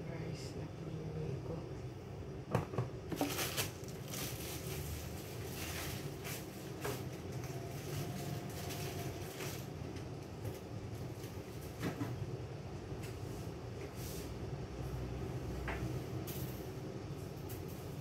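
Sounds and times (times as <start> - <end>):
steady low hum: 0.0 - 18.0
kitchen knocks and clatters: 2.5 - 3.6.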